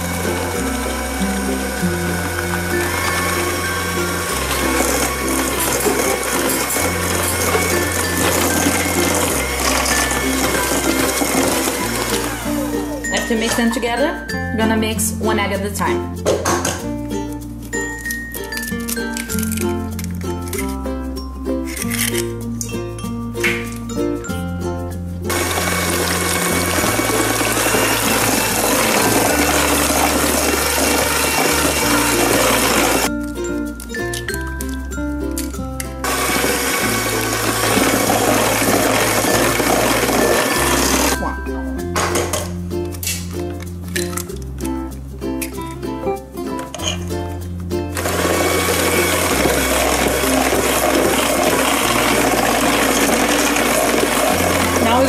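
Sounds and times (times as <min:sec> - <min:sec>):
electric hand mixer running: 0:00.0 - 0:13.2, 0:25.3 - 0:33.1, 0:36.0 - 0:41.3, 0:48.0 - 0:55.0
light ukulele music: 0:00.0 - 0:55.0.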